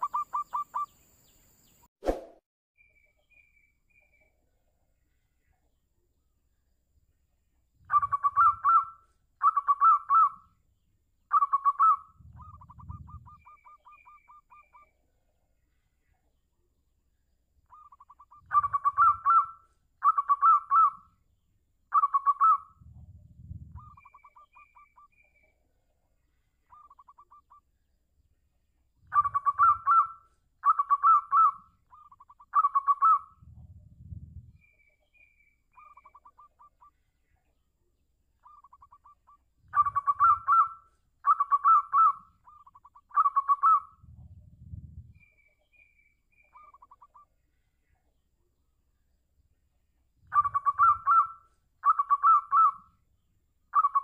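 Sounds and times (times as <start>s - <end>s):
dove cooing trills: 0.0s - 1.0s, 7.8s - 10.5s, 11.3s - 14.9s, 17.7s - 21.1s, 21.9s - 25.2s, 26.7s - 27.6s, 29.0s - 34.7s, 35.7s - 37.0s, 38.4s - 45.3s, 46.4s - 47.3s, 50.2s - 52.9s, 53.7s - 54.0s.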